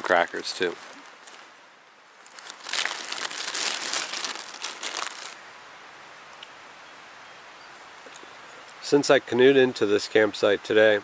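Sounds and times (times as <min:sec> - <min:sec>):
plastic bag crinkling: 0:00.0 - 0:05.4.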